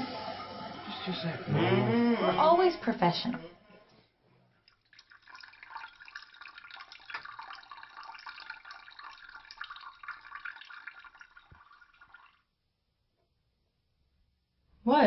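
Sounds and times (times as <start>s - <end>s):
water running and splashing: 4.7s - 12.4s.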